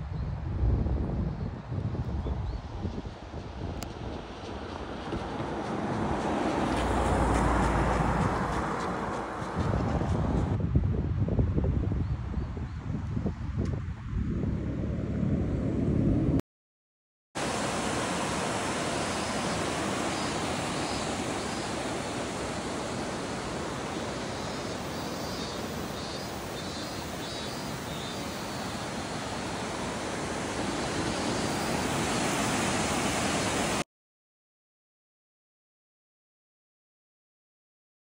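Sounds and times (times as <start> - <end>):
river flowing over rocks: 17.4 - 33.8.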